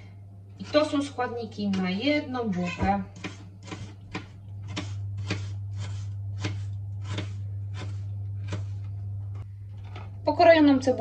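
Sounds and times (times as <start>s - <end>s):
steady low hum: 0.0s - 11.0s
knife dicing onion on cutting board: 3.2s - 8.8s.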